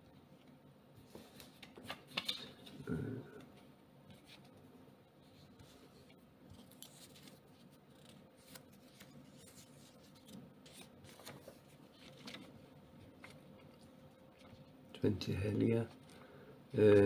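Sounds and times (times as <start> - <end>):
paper banknotes rustling: 6.5 - 13.8.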